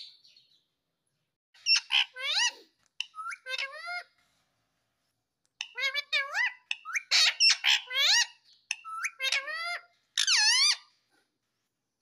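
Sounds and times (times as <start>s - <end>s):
parakeet squeaky calls: 1.6s - 4.1s, 5.6s - 11.0s.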